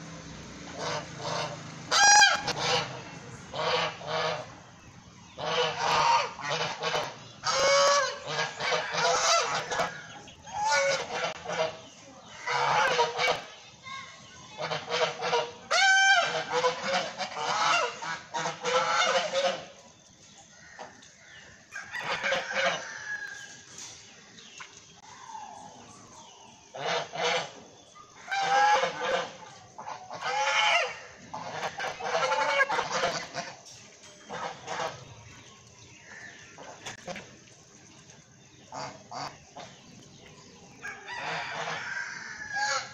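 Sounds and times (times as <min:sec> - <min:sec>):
geese honking: 0:00.7 - 0:13.6, 0:14.4 - 0:19.8, 0:21.7 - 0:23.3, 0:26.7 - 0:37.4, 0:38.7 - 0:40.2, 0:40.8 - 0:42.9.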